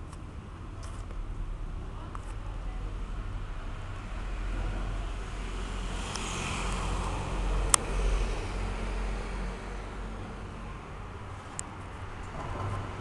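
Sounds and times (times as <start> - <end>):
road traffic rumble: 0.0 - 13.0
vehicle passing: 3.3 - 13.0.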